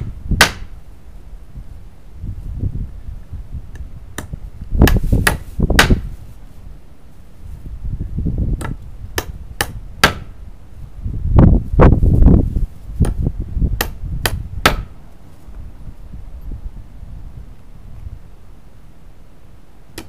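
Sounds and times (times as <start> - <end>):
hammer striking nails into wood: 0.4 - 0.7, 4.2 - 6.0, 8.6 - 10.3, 13.8 - 14.9.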